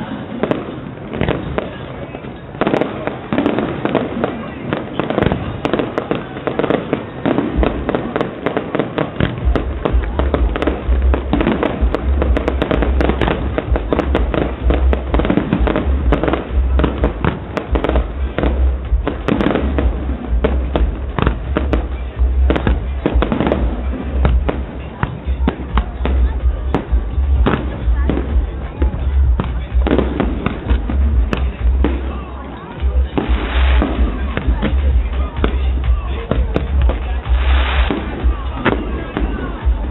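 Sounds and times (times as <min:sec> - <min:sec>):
fireworks bangs and crackles: 0:00.0 - 0:39.9.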